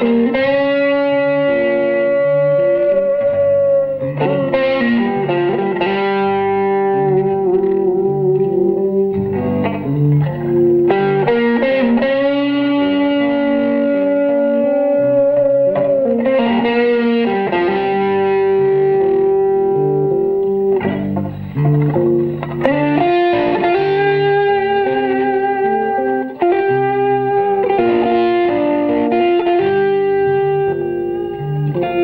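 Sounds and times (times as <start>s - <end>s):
overdriven electric guitar: 0.0s - 32.0s.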